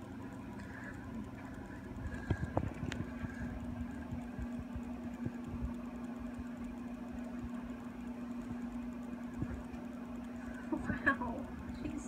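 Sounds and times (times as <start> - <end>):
low hum: 0.0 - 12.0
low thumps and rumble: 1.3 - 7.8.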